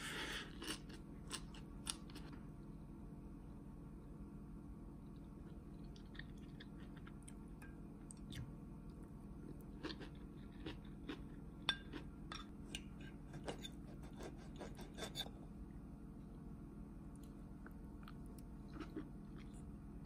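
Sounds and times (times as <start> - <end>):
chewing crunchy cabbage: 9.4 - 12.1, 18.0 - 19.7.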